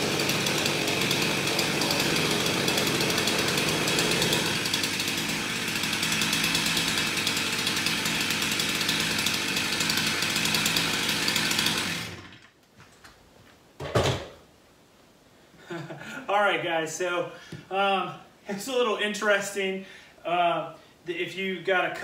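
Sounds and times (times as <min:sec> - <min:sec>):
chainsaw cutting into log: 0:00.0 - 0:12.5.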